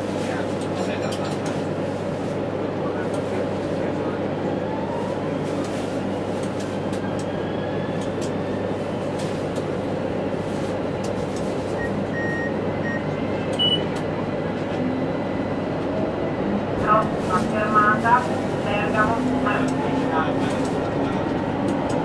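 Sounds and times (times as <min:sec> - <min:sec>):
tram rumbling along track: 0:00.0 - 0:22.0
short high beeps: 0:13.6 - 0:13.9.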